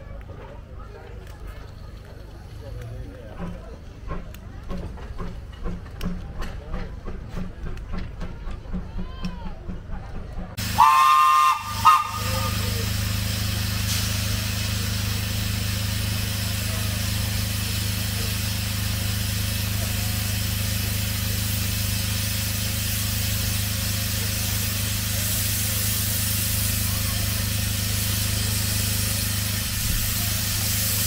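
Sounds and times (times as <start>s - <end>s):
steam locomotive rumble and hiss: 0.0s - 31.0s
steam locomotive whistle blasts: 10.6s - 12.8s.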